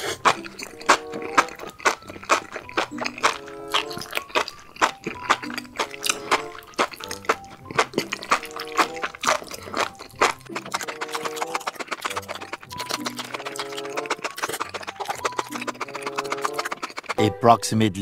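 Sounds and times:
wet slurping and chewing: 0.0 - 17.2
background music: 0.0 - 18.0.

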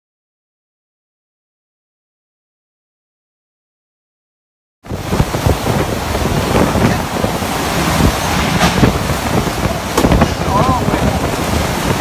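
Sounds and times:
driving rain: 4.8 - 12.0
violent wind: 4.8 - 12.0
wind buffeting microphone: 4.8 - 12.0.

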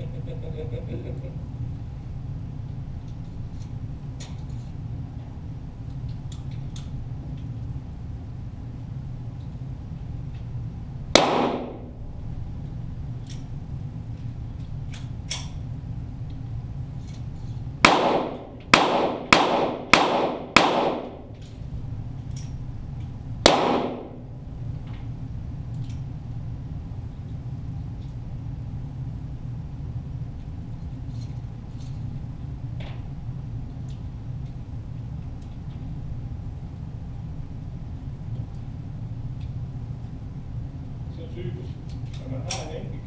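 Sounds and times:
steady low hum: 0.0 - 43.0
pistol shots with echo: 11.2 - 12.0, 17.8 - 21.3, 23.4 - 24.3.

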